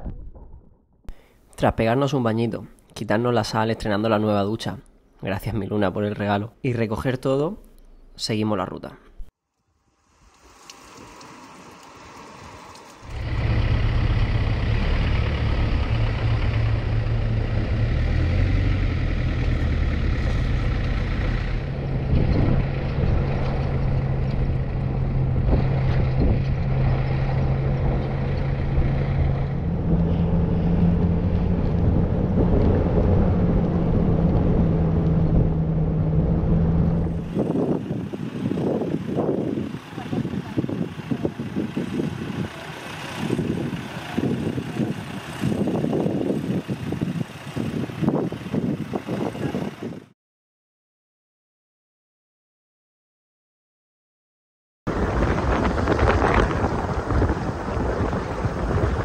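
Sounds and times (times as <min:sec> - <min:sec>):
off-road vehicle engine drone: 0:10.0 - 0:50.1, 0:54.9 - 0:59.0.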